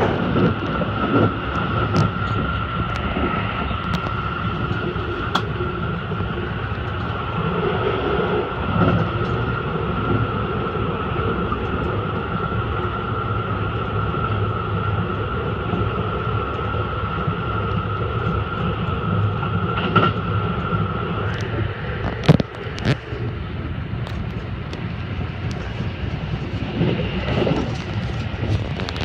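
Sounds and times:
constant high whine: 0.0 - 29.0
train low rumble: 0.0 - 29.0.

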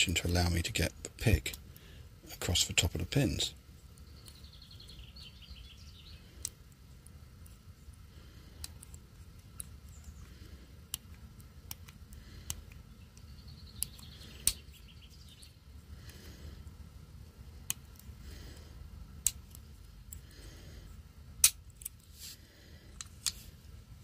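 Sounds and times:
lock pick metallic clicks: 10.9 - 14.8, 21.4 - 22.0.

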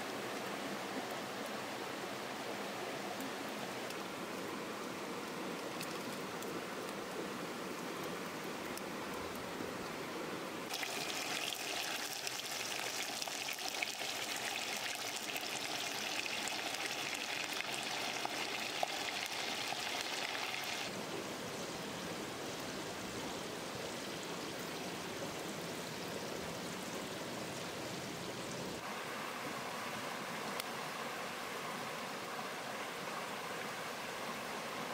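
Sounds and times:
stream running: 0.0 - 34.9
fish sizzling in a pot: 10.7 - 20.9.

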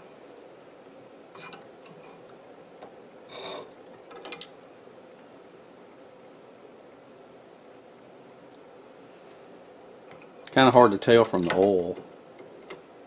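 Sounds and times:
metal rod scraping in clamp: 3.3 - 3.7.

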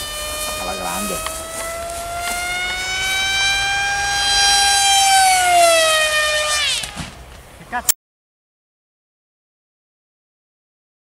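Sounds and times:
model airplane motor whine: 0.0 - 7.3.

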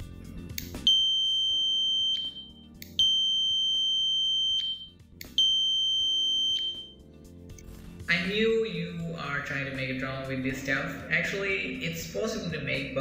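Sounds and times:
high-pitched electric buzzer beeps: 0.9 - 7.0.

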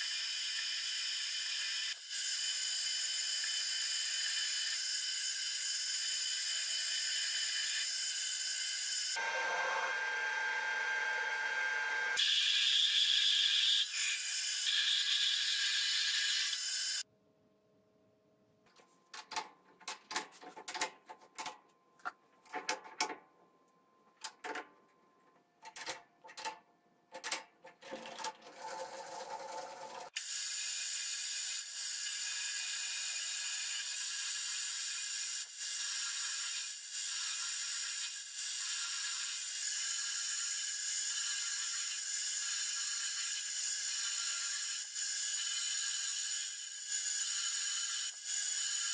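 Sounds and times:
metal clicks and knocks: 19.1 - 23.3, 24.2 - 24.9.

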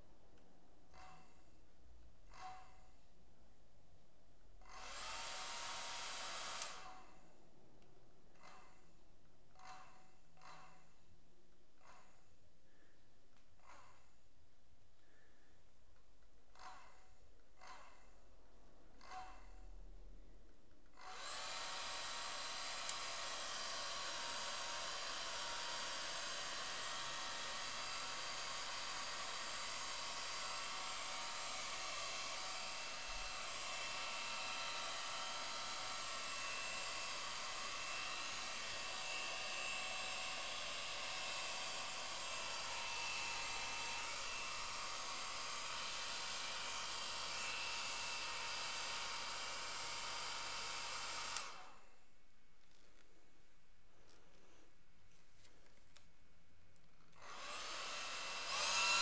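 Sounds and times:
hair dryer running: 4.7 - 7.0, 21.0 - 51.9, 57.2 - 59.0.

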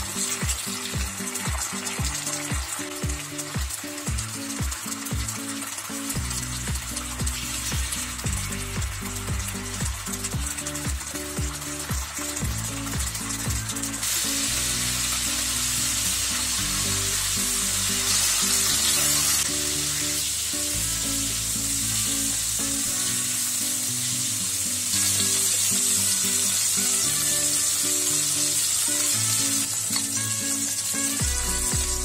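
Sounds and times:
background music: 0.0 - 32.0
chicken sizzling in oil: 0.0 - 32.0.

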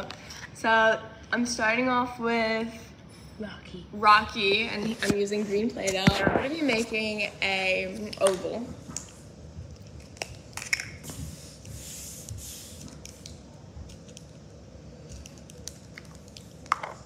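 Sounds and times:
soft hiss of dough: 11.0 - 13.9.

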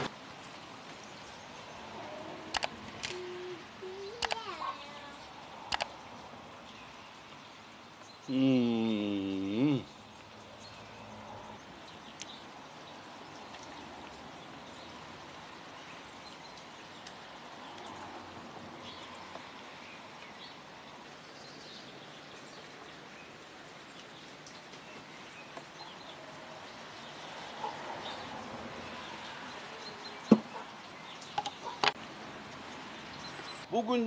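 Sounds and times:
small clicks: 2.5 - 3.2, 4.2 - 4.5, 5.7 - 6.0.

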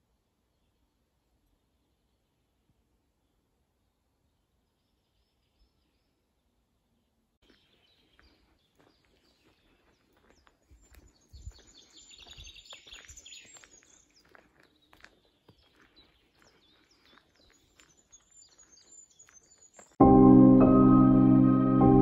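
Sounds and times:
birds chirping: 4.3 - 20.0.

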